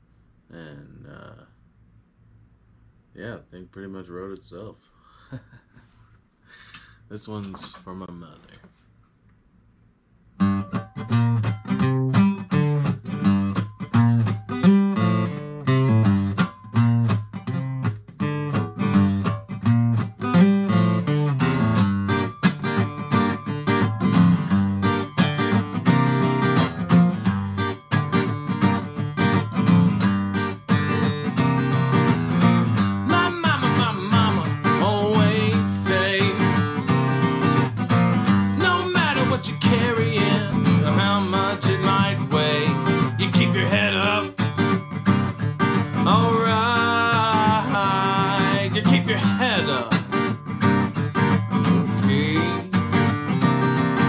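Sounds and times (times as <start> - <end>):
acoustic guitar strumming: 10.4 - 54.0
man singing: 33.0 - 36.9, 38.5 - 44.5, 45.9 - 50.1, 51.9 - 52.8.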